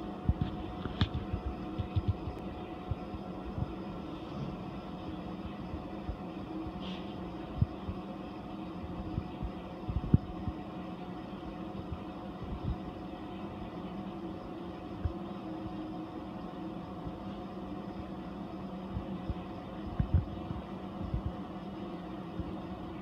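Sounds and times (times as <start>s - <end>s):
aquarium equipment humming: 0.0s - 23.0s.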